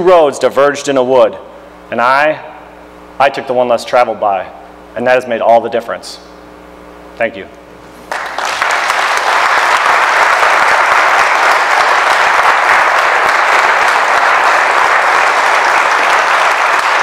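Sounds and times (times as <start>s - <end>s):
audience applauding: 8.1s - 17.0s.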